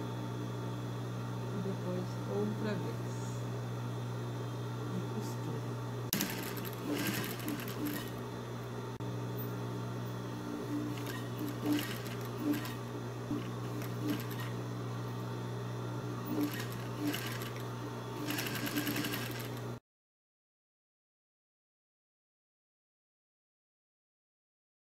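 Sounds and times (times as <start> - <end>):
sewing machine motor hum: 6.1 - 8.4, 10.3 - 15.2, 16.0 - 19.8
sewing machine stitching: 6.2 - 8.2, 10.6 - 14.6, 16.3 - 17.6, 18.2 - 19.7.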